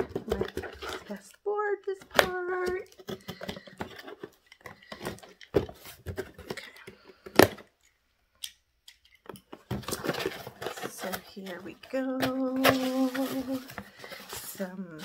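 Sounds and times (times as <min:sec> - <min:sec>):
cardboard tearing: 0:09.7 - 0:15.0
cardboard box scraping: 0:09.8 - 0:15.0.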